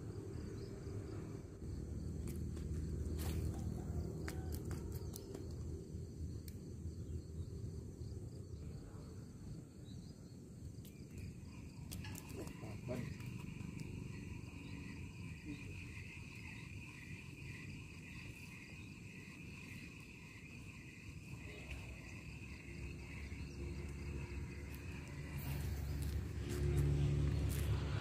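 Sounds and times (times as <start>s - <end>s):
insects chirping trill: 0.0s - 28.0s
low rumble with hum: 0.0s - 28.0s.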